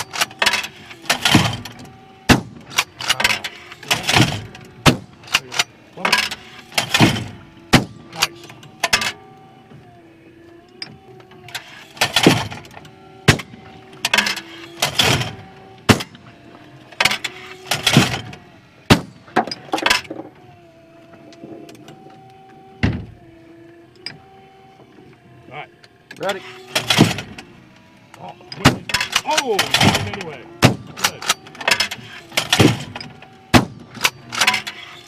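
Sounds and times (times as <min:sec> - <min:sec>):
clay thrower clunking: 0:00.0 - 0:09.3, 0:26.2 - 0:35.0
electric motor humming: 0:00.0 - 0:35.0
shotgun shots: 0:15.9 - 0:16.2.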